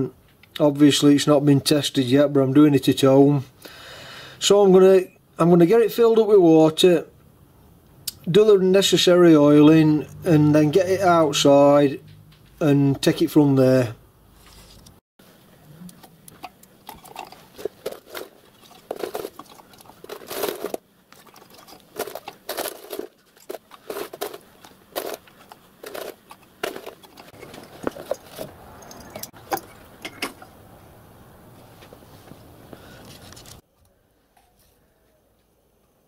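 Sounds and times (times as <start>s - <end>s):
metal parts clinking and knocking: 16.4s - 30.5s.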